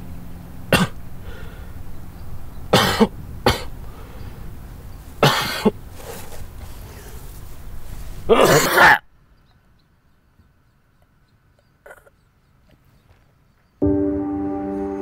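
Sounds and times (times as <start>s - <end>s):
man coughing: 0.7s - 1.0s, 2.7s - 3.8s, 5.2s - 5.8s, 8.3s - 9.1s.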